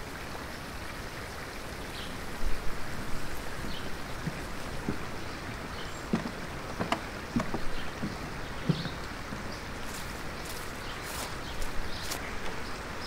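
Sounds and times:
small stream rushing: 0:00.0 - 0:13.0
footsteps on wooden stairs: 0:03.0 - 0:12.2.

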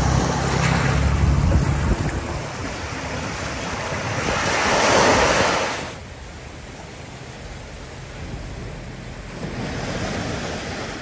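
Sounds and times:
wind buffeting microphone: 0:00.0 - 0:05.9
sea waves washing onto beach: 0:00.0 - 0:11.0.

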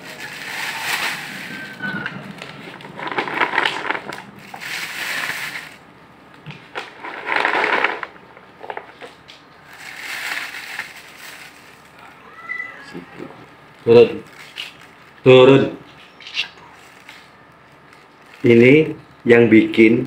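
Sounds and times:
cat litter crunching and rattling: 0:00.0 - 0:05.9, 0:06.5 - 0:12.0, 0:13.7 - 0:15.3, 0:16.8 - 0:18.8.

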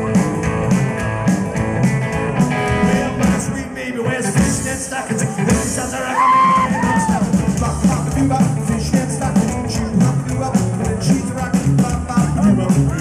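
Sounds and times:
bouncing bass line: 0:00.0 - 0:03.6, 0:06.6 - 0:13.0
drum kit: 0:00.0 - 0:13.0
electric guitar: 0:00.0 - 0:13.0
person singing: 0:02.8 - 0:13.0.

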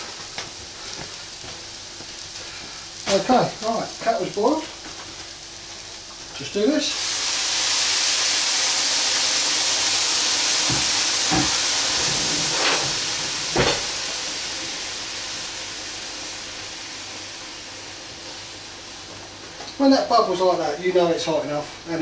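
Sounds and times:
steam hissing and sizzling: 0:00.0 - 0:22.0
utensils knocking on pan: 0:10.6 - 0:11.6.

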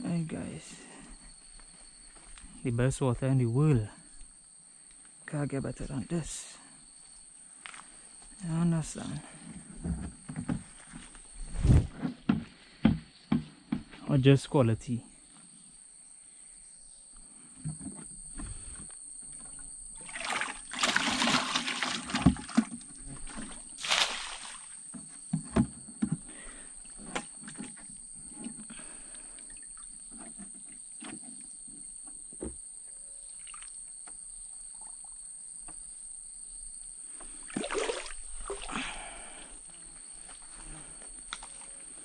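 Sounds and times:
high insect drone: 0:00.0 - 0:42.0
water splashing: 0:20.0 - 0:24.8, 0:37.4 - 0:38.8.

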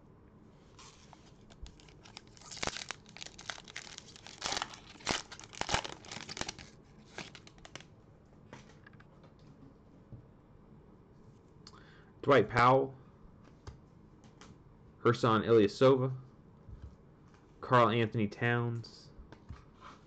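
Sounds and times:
foil wrapper crackling: 0:01.0 - 0:07.9.

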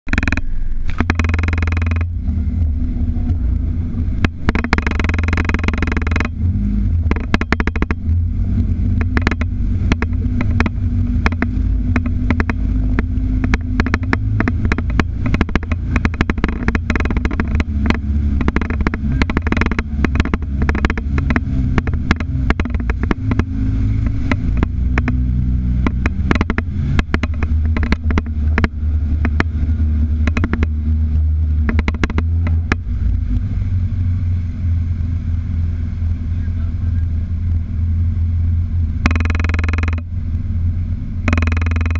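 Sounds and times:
utility vehicle engine rumbling: 0:00.0 - 0:41.9
water splashing: 0:06.4 - 0:36.3
body knocks and rattles: 0:08.9 - 0:25.2, 0:25.9 - 0:30.8.

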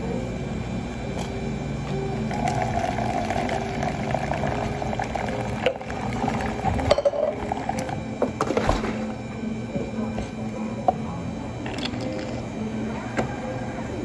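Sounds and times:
liquid bubbling: 0:02.3 - 0:08.1.

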